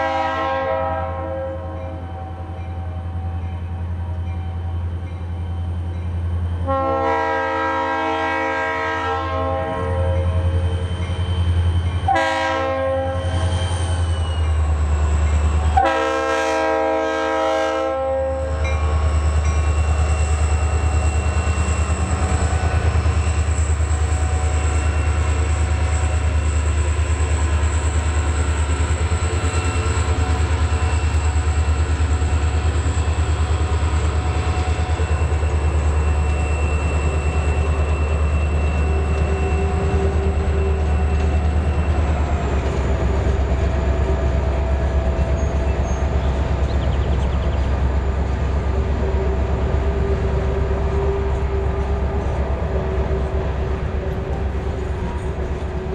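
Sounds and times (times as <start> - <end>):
locomotive air horn: 0.0 - 3.2, 6.6 - 10.8, 12.0 - 13.7, 15.7 - 18.7, 48.8 - 55.9
train cars rumbling past: 0.0 - 55.9.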